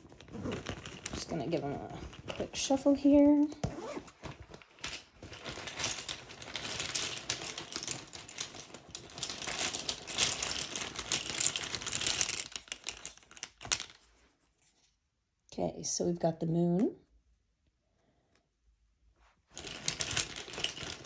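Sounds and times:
tiles clattering while shuffled: 4.2 - 15.0, 19.2 - 21.0.

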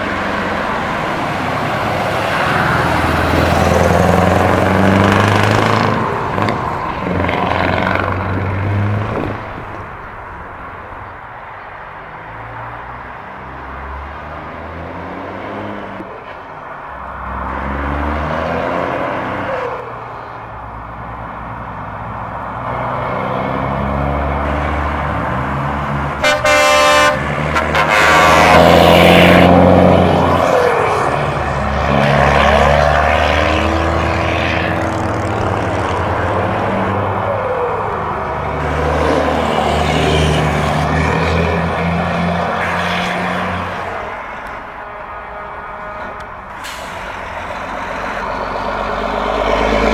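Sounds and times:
diesel truck engines revving: 0.0 - 49.9
truck horn: 26.1 - 33.1, 39.7 - 49.9.

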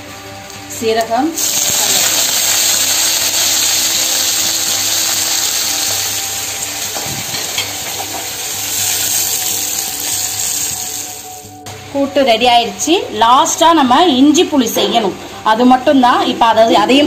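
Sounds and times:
seeds sizzling in hot oil: 1.4 - 11.5.

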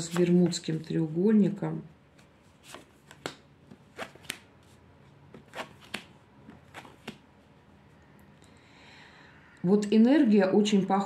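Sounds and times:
cards flicking and slapping: 2.6 - 4.5, 5.3 - 7.3.

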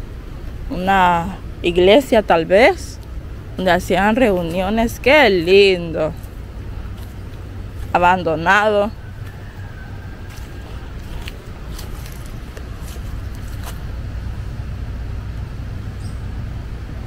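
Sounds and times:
low outdoor rumble: 0.0 - 17.0
footsteps on gravel: 3.8 - 8.3, 9.2 - 14.0.

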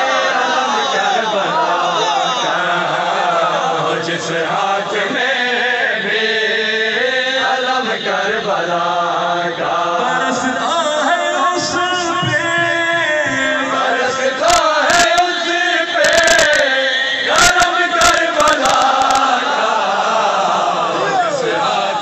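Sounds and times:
man chanting through loudspeakers: 0.0 - 19.5.

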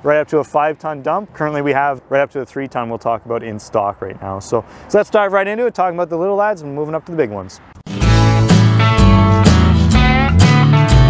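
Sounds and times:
strummed guitar music with beat: 7.8 - 11.0.

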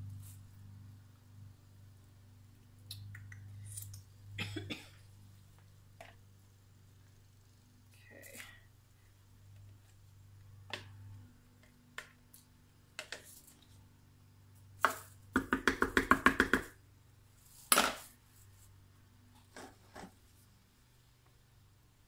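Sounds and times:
spatula knocking plastic pitcher: 14.8 - 16.7.

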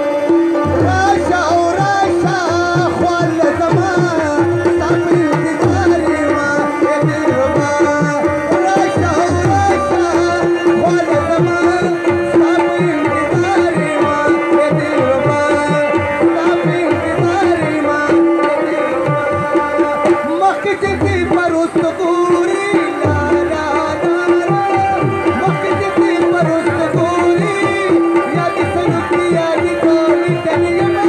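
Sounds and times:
fast tabla drumming: 0.0 - 31.0.

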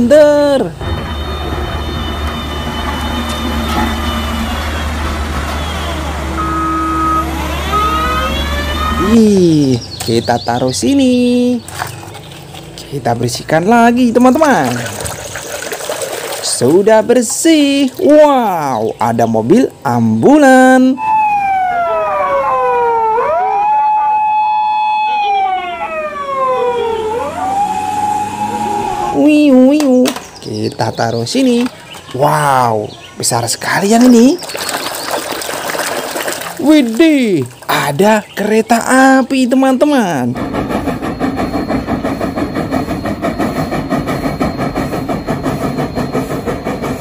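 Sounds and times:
emergency siren wailing: 0.8 - 9.7, 20.7 - 29.8
steam locomotive chuffing: 38.8 - 47.0.

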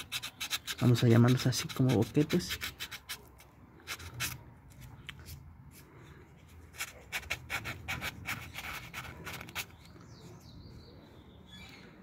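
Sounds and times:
sandpaper rubbing metal rim: 0.0 - 3.2.

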